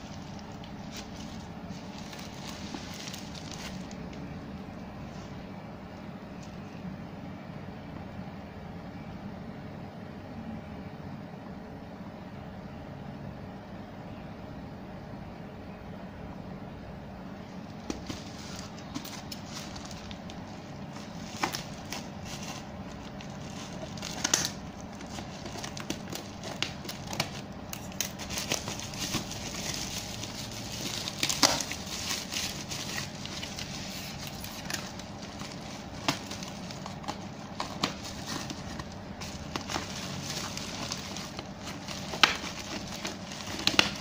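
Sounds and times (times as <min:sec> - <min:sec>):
bubble wrap crinkling: 0:00.0 - 0:04.4, 0:17.6 - 0:44.0.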